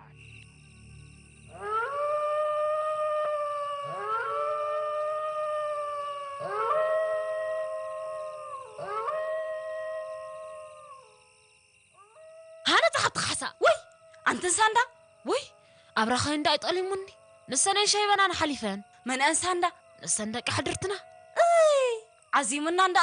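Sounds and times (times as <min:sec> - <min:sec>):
long sliding howls: 0:01.5 - 0:13.0.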